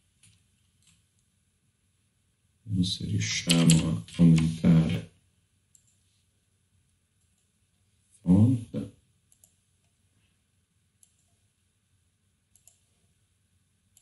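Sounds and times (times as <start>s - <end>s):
computer mouse clicks: 0.2s - 1.3s, 5.7s - 6.1s, 9.3s - 10.0s, 11.0s - 11.4s, 12.5s - 12.9s.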